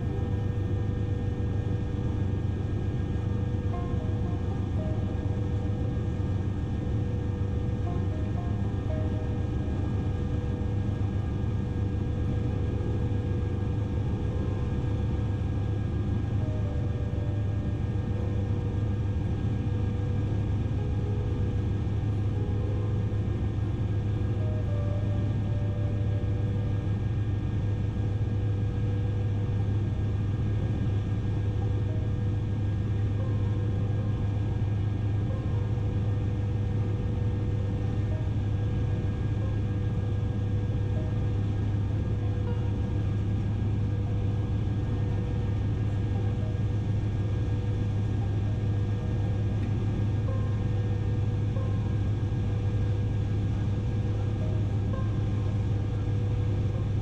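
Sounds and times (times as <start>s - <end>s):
helicopter droning in flight: 0.0s - 57.0s.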